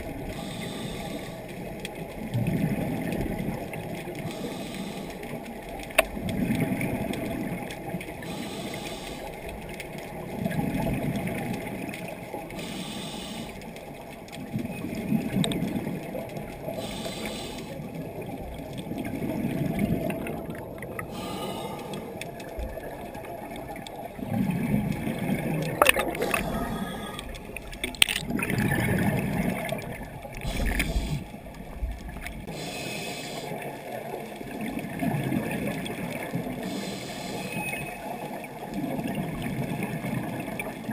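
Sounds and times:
exhaled air bubbling underwater: 0.0 - 40.9
regulator inhale hiss: 0.3 - 1.5, 4.3 - 5.3, 8.2 - 9.4, 12.6 - 13.7, 16.8 - 17.8, 21.1 - 22.2, 30.4 - 31.4, 32.5 - 33.7, 36.6 - 37.6.

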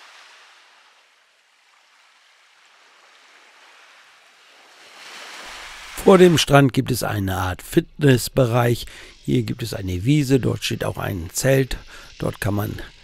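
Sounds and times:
waves washing onto sandy beach: 0.0 - 6.7.

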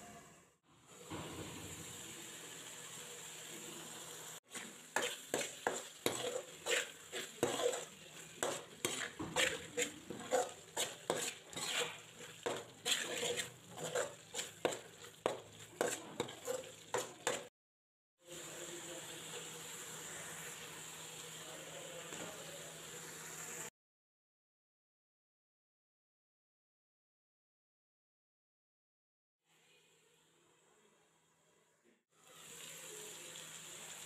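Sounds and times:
masala sizzling: 0.2 - 17.5, 18.2 - 23.7, 32.2 - 34.0
spoon scraping metal pan: 4.5 - 17.5.

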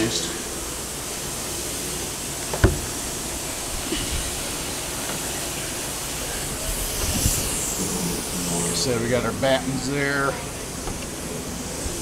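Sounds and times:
steady background hiss: 0.0 - 12.0
hatch lid thumping shut: 2.5 - 2.9.

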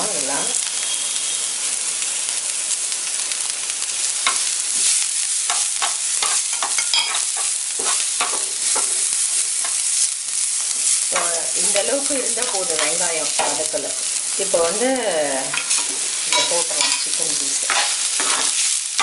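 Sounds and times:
onions sizzling in oil: 0.0 - 19.0
steel spatula scraping griddle: 4.2 - 10.0, 15.5 - 19.0.

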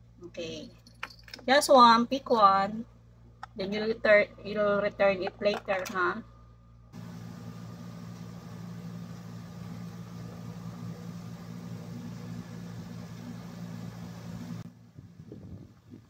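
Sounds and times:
small fan motor whirring: 7.0 - 16.0.

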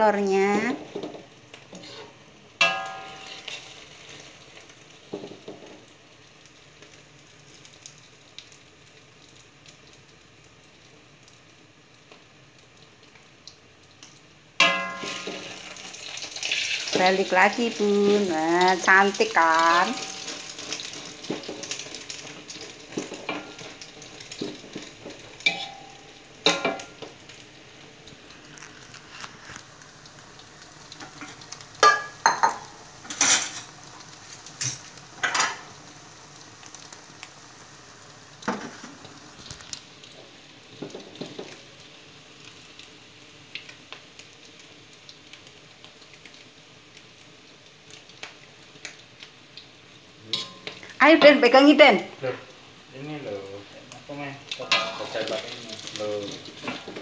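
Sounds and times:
egg sizzling in oil: 0.0 - 57.0
metal spatula scraping a wok: 1.7 - 3.7, 25.4 - 25.9.

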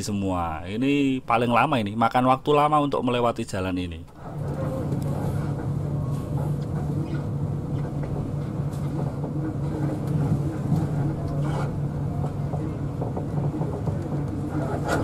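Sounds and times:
bus diesel engine humming: 4.2 - 15.0.

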